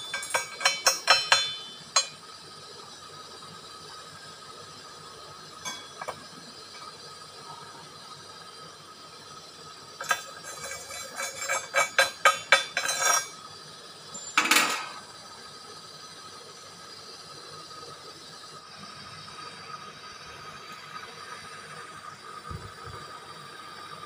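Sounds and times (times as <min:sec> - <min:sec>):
loud metal clank: 0:00.0 - 0:02.2, 0:14.3 - 0:15.0
steel clinking and knocking: 0:00.0 - 0:02.2, 0:05.6 - 0:07.0, 0:10.0 - 0:13.4, 0:14.2 - 0:15.0.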